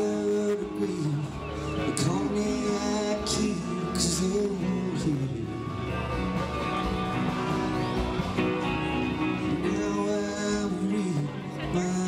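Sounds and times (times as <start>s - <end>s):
live country-rock band: 0.0s - 12.0s.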